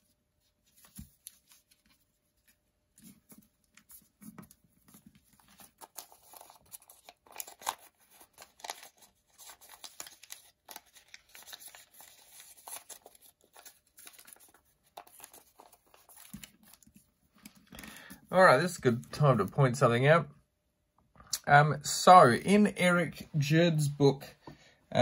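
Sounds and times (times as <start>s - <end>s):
paper rustling and crinkling: 0.0s - 18.2s.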